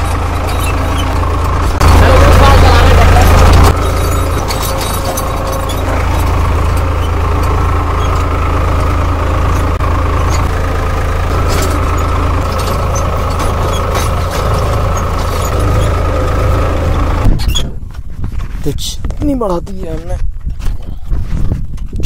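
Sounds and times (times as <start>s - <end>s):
clicks and rattles: 0.0s - 10.6s, 11.3s - 16.5s
tractor diesel engine running: 0.0s - 22.0s.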